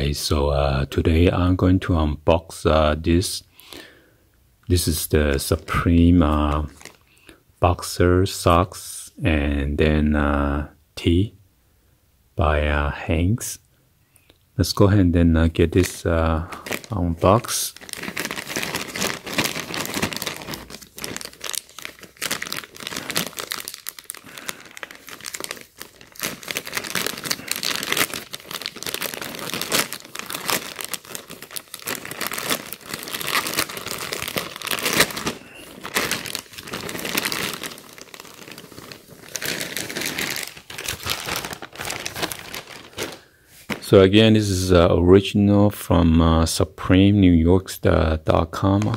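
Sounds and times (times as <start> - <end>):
plastic mailer bag crinkling: 5.0 - 7.1, 15.6 - 44.0, 48.6 - 48.9.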